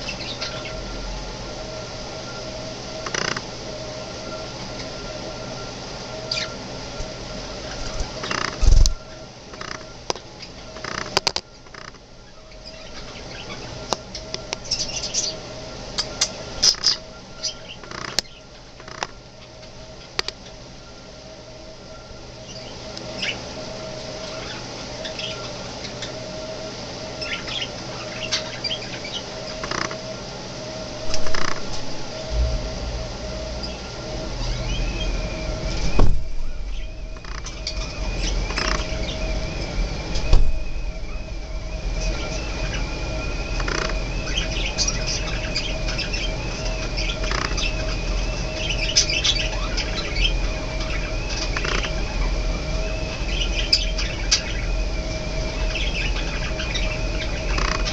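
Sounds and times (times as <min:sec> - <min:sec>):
budgerigars chirping: 0:00.0 - 0:00.9, 0:03.1 - 0:03.4, 0:06.3 - 0:06.6, 0:07.6 - 0:08.8, 0:09.6 - 0:11.9, 0:12.5 - 0:15.4, 0:16.0 - 0:20.6, 0:22.5 - 0:23.4, 0:24.2 - 0:26.2, 0:27.2 - 0:30.0, 0:36.6 - 0:39.2, 0:42.0 - 0:52.4, 0:53.0 - 0:54.7, 0:55.4 - 0:57.9
faint steady hum: 0:00.0 - 0:57.9
low background rumble: 0:27.2 - 0:57.9.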